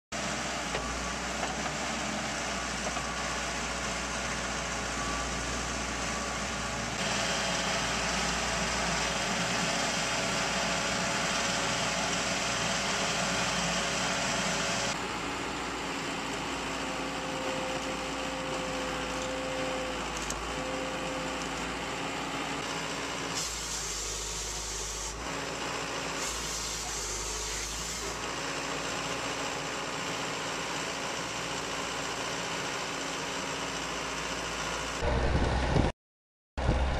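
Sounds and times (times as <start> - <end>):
diesel engine running: 0.2 - 35.9, 36.6 - 36.9
high hydraulic whine: 22.6 - 28.2.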